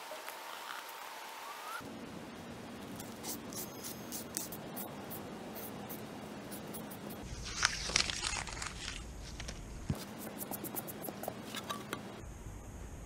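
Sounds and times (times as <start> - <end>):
paper rubbed and peeled: 7.2 - 11.0.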